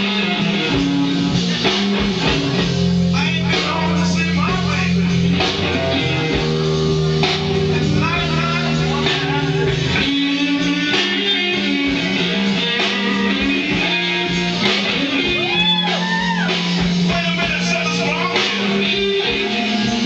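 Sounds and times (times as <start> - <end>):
guitar music: 0.0 - 20.0.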